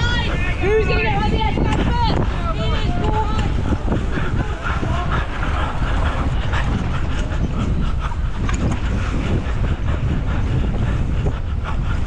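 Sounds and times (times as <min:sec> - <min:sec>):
wind buffeting microphone: 0:00.0 - 0:12.0
bike clicks and rattles: 0:04.8 - 0:09.7.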